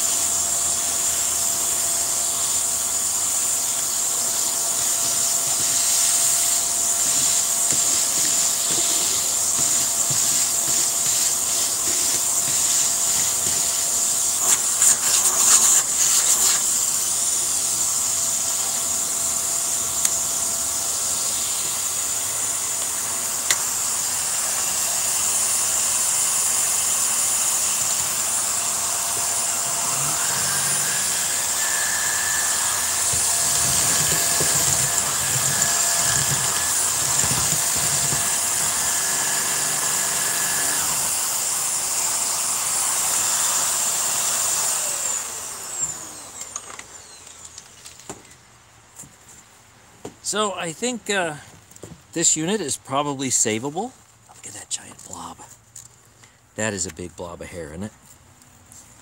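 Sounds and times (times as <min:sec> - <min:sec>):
vacuum cleaner motor whining: 0:00.0 - 0:48.4.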